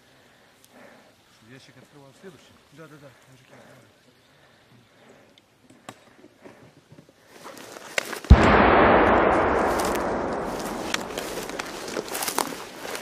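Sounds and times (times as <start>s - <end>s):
mortar firing boom: 8.3s - 12.8s
rustling through grass: 9.5s - 13.0s.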